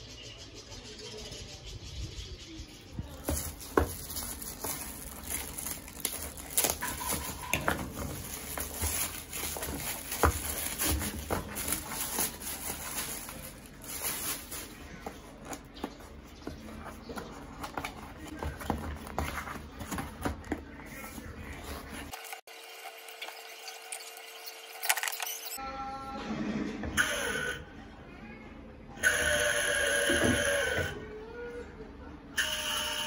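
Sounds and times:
plastic packaging crinkling: 3.2 - 16.1.

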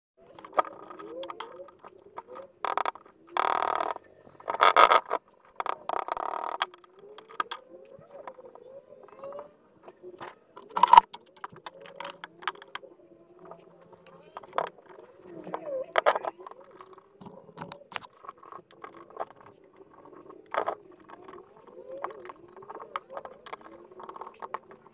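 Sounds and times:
metal parts clinking and rattling: 10.2 - 12.8.

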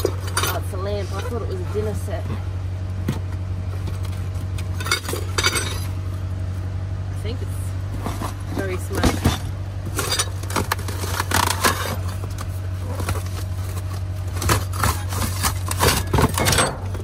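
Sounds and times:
steady low hum: 0.0 - 17.0
rummaging boxes and packaging: 7.8 - 17.0.

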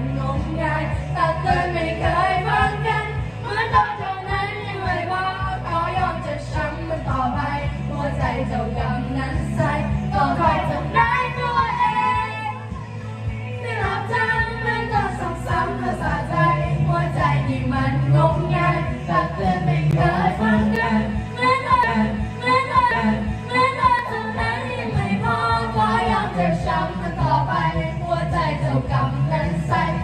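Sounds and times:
girl singing into a microphone: 0.0 - 12.8, 13.5 - 30.0
music backing track: 0.0 - 30.0.

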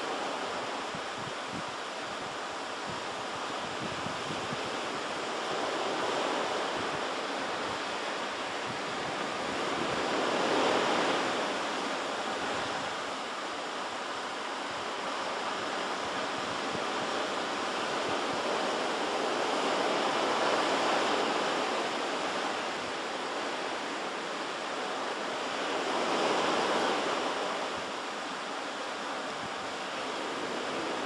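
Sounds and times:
surf washing on shore: 0.0 - 31.0.

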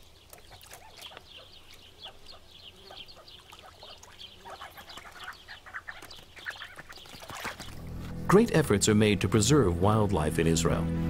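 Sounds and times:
birds chirping calls: 0.0 - 8.7.

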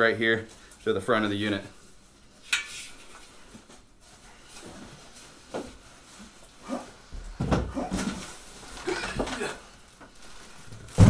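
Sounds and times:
faint rustles and knocks: 1.9 - 11.0
cardboard box and plastic bag handling: 7.8 - 11.0.

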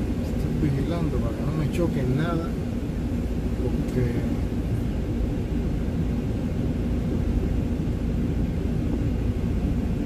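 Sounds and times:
truck diesel engine rumble: 0.0 - 10.0.

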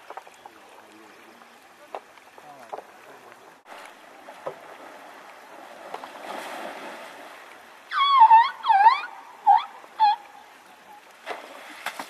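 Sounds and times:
elephant splashing in water: 3.6 - 7.8, 11.2 - 12.0.

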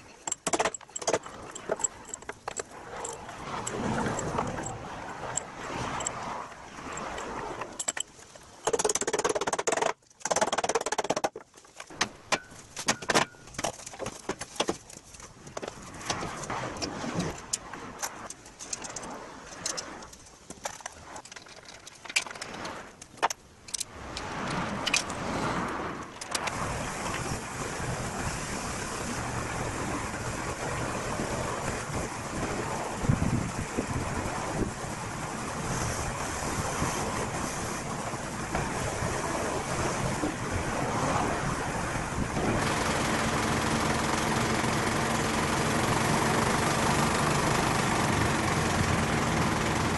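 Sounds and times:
hand tools clicking and clanking: 0.0 - 6.2, 7.0 - 16.5, 17.2 - 25.2
wind noise on microphone: 24.0 - 42.9.

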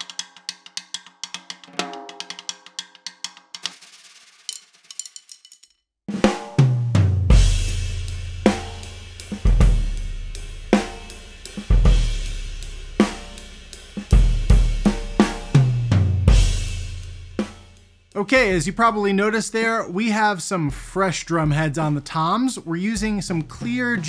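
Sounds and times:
snare drum: 1.7 - 2.6, 3.6 - 5.0, 6.1 - 10.0, 10.7 - 18.7, 22.9 - 24.0
toms ringing: 1.7 - 3.1.

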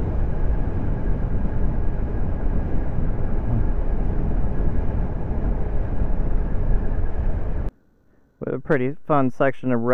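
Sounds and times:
wind rush and tyre noise: 0.0 - 7.7.

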